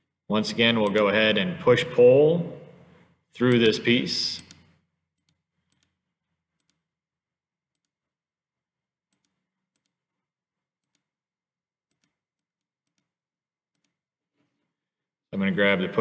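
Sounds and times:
faint computer mouse clicks: 0:04.4 - 0:06.0.

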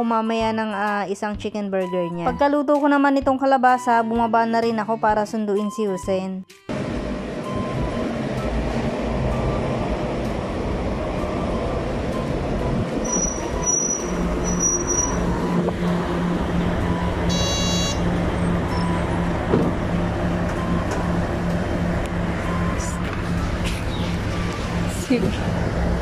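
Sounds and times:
street traffic: 0:06.7 - 0:26.0
short beep: 0:13.0 - 0:15.2, 0:17.3 - 0:18.0
thin high whine: 0:13.0 - 0:15.7.

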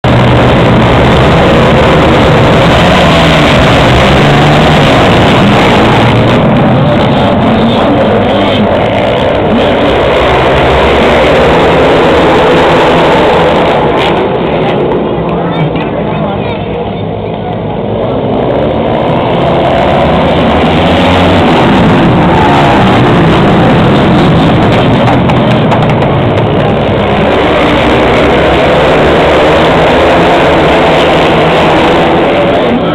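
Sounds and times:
motorcycles revving and accelerating: 0:00.0 - 0:32.9.

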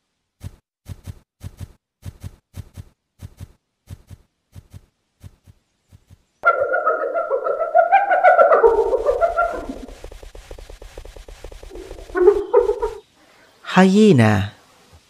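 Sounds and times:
quick trotting footsteps: 0:00.4 - 0:06.4
cartoon hoof footsteps: 0:00.4 - 0:07.0, 0:08.4 - 0:13.0
animal call with wavering pitch: 0:06.4 - 0:10.0, 0:11.7 - 0:13.0.

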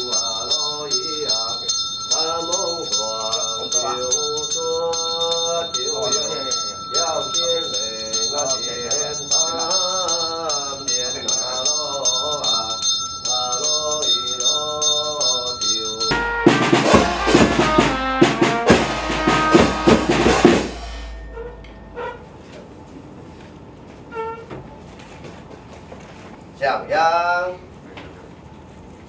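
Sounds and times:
small bell rung rapidly: 0:00.0 - 0:16.2
wavering melody: 0:00.0 - 0:22.4
drum cymbal and gong strikes: 0:16.1 - 0:21.9.

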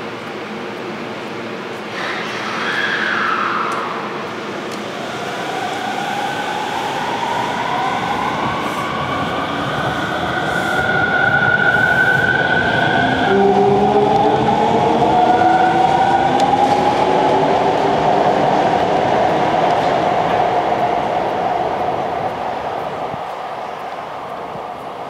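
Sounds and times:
electric train motors whining: 0:01.9 - 0:20.4.

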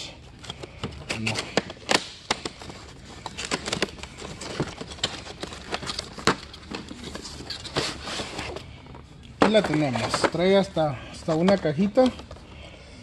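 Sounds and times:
cardboard packaging being opened: 0:00.3 - 0:08.7.

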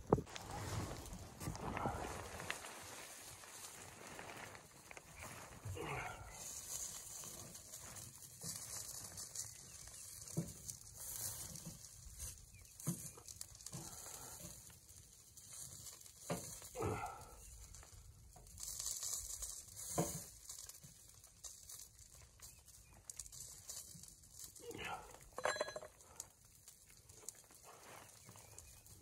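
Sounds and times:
rain on a tent: 0:00.0 - 0:09.2.

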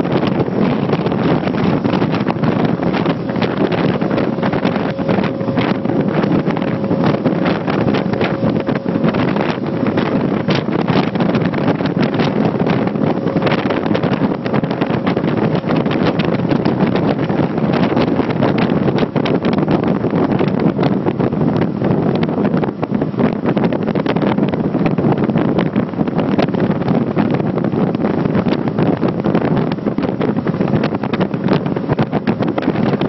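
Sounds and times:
motorboat engine: 0:00.0 - 0:33.0
rushing water: 0:00.0 - 0:33.0
wind buffeting microphone: 0:00.0 - 0:33.0.

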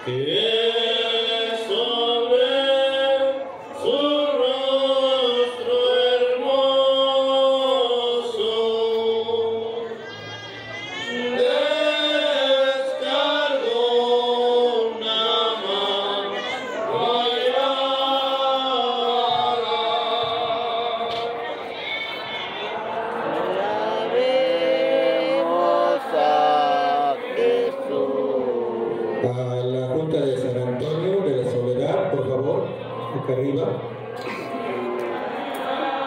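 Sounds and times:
slow religious chant: 0:00.0 - 0:29.6, 0:34.1 - 0:36.0.

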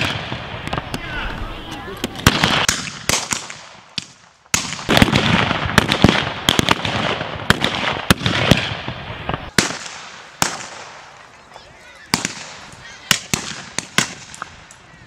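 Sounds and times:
blank gunfire: 0:02.0 - 0:11.0.

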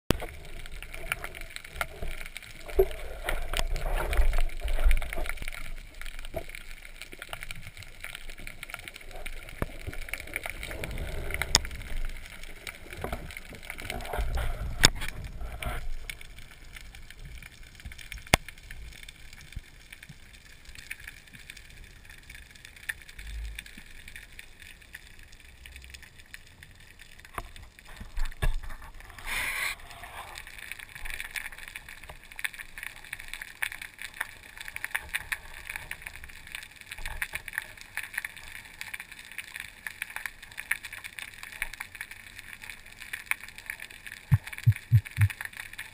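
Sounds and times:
muffled underwater rushing: 0:44.2 - 0:45.4.

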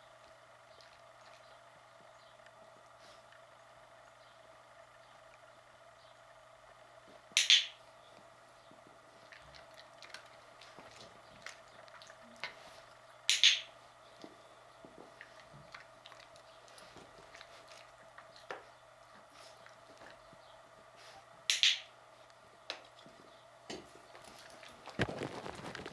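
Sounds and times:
training clicker clicks: 0:07.4 - 0:07.8, 0:13.3 - 0:13.7, 0:21.5 - 0:21.9.

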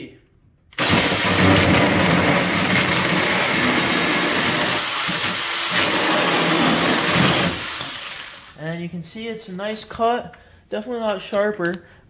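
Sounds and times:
electric chainsaw cutting wood: 0:00.8 - 0:08.6.

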